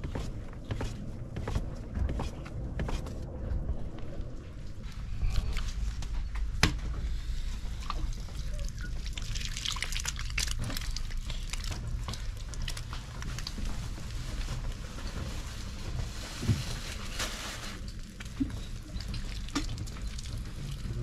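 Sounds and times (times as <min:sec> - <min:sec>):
steady low rumble: 0:00.0 - 0:21.0
wet clay squelching: 0:07.8 - 0:13.5.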